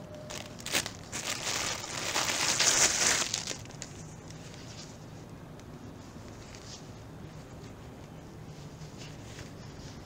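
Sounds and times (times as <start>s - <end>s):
plastic bag crinkling: 0.3s - 4.5s.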